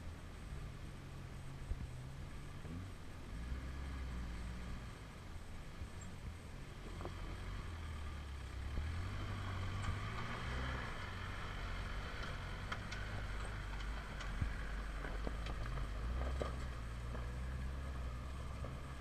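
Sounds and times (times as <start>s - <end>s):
engine low rumble: 0.0s - 19.0s
stones clicking under tyres: 8.5s - 19.0s.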